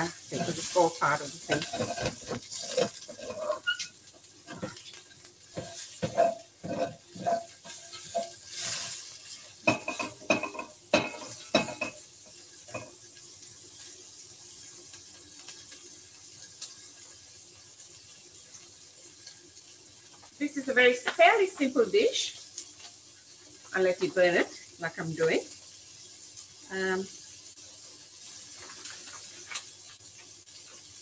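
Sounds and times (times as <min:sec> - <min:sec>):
utensil scraping a pan: 0:00.0 - 0:04.8, 0:05.6 - 0:12.0
onions sizzling in a pan: 0:00.0 - 0:31.0.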